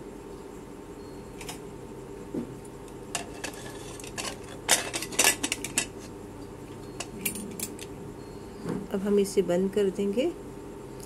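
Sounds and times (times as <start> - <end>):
metal lid clanking and clicking: 3.2 - 6.0.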